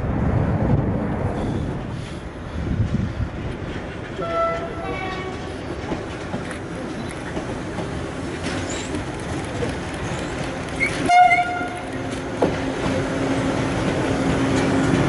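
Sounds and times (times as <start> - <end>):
freight wagons rolling past: 3.5 - 15.0
locomotive horn toot: 4.2 - 5.4, 10.8 - 11.9.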